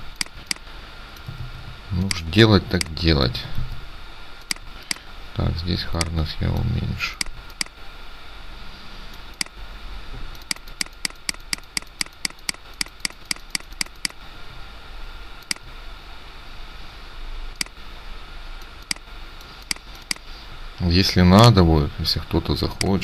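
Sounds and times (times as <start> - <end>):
computer mouse clicking: 0.1 - 0.7, 4.4 - 5.1, 6.0 - 7.8, 9.2 - 9.6, 10.4 - 14.2, 18.7 - 20.3.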